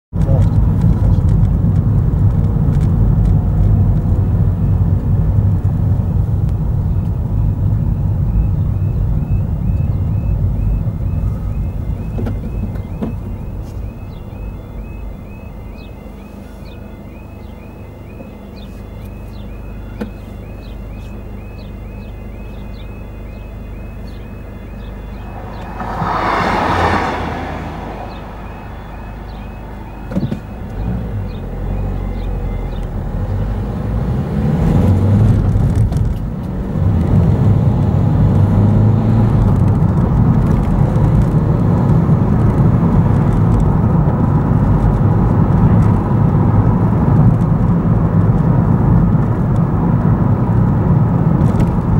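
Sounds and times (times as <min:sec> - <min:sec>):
car driving off: 0:00.2 - 0:51.9
level crossing alarm warbling: 0:07.0 - 0:33.2
train rushing past: 0:25.1 - 0:29.9.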